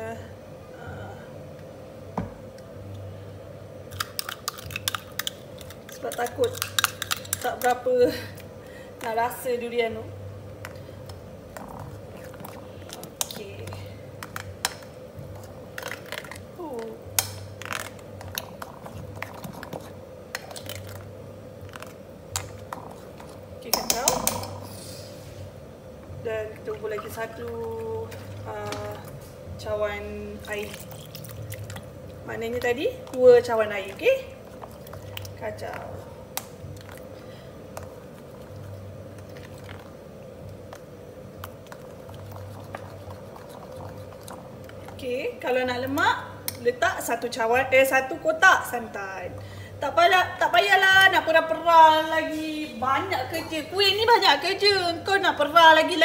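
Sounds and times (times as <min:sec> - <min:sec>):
faint steady hum: 0:00.0 - 0:56.0
small clicks of mixing: 0:03.9 - 0:09.2, 0:10.6 - 0:24.6, 0:30.4 - 0:45.2
soft wet squishing: 0:30.4 - 0:45.2.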